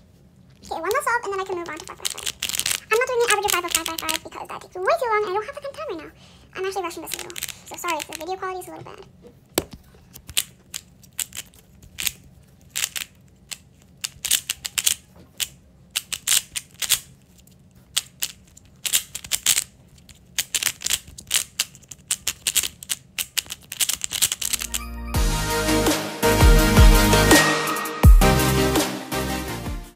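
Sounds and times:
plastic cube clicking: 1.6 - 4.3, 7.1 - 8.3, 9.6 - 24.7.

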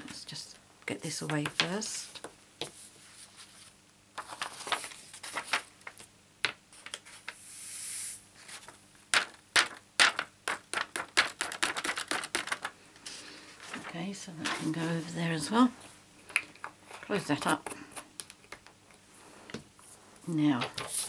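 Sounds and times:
fingers tapping paper: 9.1 - 12.7.

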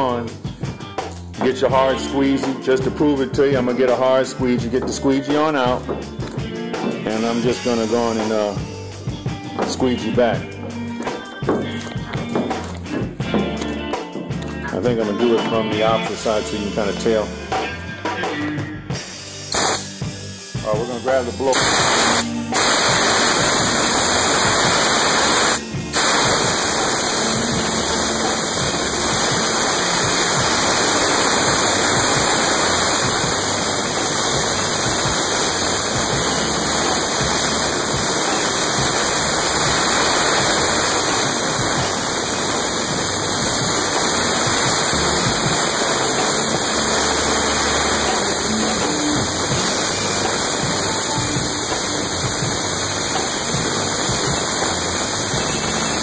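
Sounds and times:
compressed air blow gun rushing: 19.5 - 19.9, 21.6 - 56.0.

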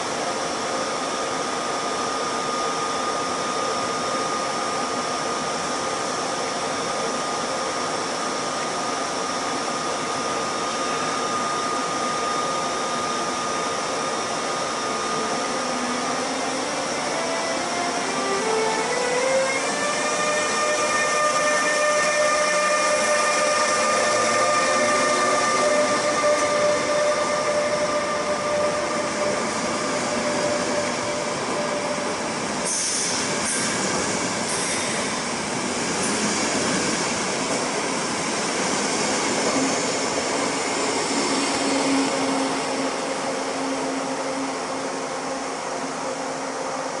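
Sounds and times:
locomotive whine: 0.0 - 47.0
train wheels rolling on rails: 14.9 - 47.0.

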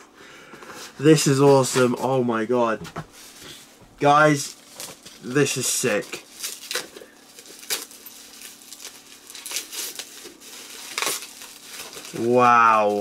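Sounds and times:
plastic packaging crinkling: 4.2 - 13.0.

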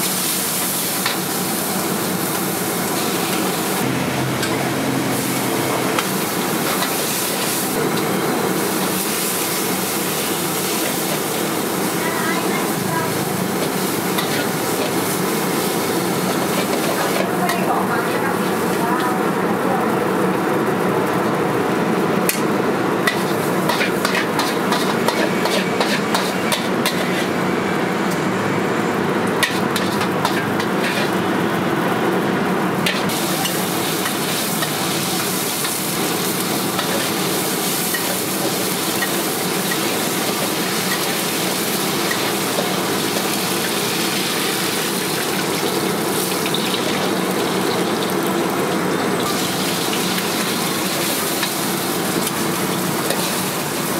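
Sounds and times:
gas burner roaring: 0.0 - 53.9
hot oil sizzling: 0.0 - 53.9
metal ladle scraping in a wok: 23.1 - 27.4, 29.4 - 31.2.

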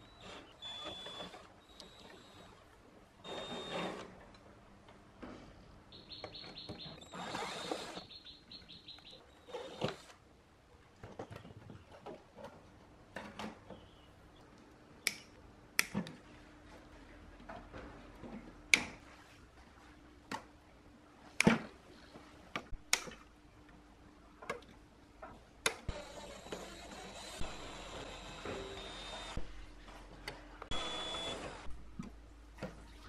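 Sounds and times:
cordless drill whirring: 3.2 - 4.1, 7.0 - 8.1, 25.9 - 29.5, 30.7 - 31.7.

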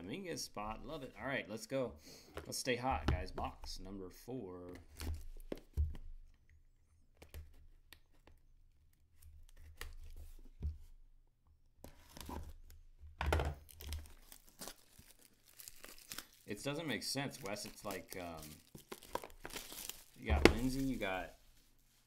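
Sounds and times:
plastic wrap crinkling and tearing: 13.6 - 22.0
knife slitting plastic wrap: 17.3 - 21.0.

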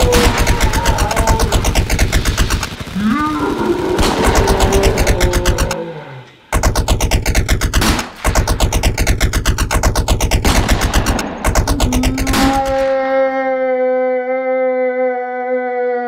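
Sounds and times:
rapid automatic gunfire effect: 0.0 - 5.8, 6.5 - 13.0.

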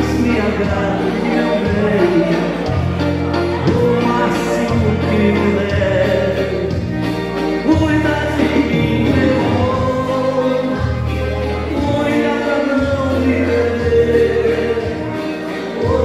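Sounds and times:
dance music with singing: 0.0 - 16.0.

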